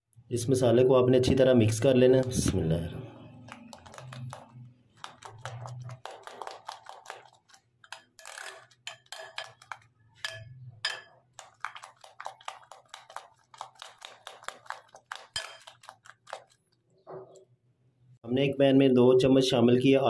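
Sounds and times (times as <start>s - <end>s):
metal spoon clinking in glass bowl: 7.8s - 11.9s, 15.3s - 15.9s.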